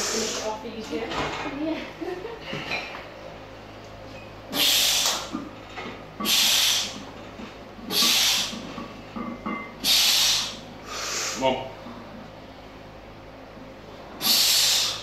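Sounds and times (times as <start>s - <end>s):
forceful breaths out: 7.9s - 8.6s, 9.8s - 11.4s, 14.2s - 15.0s.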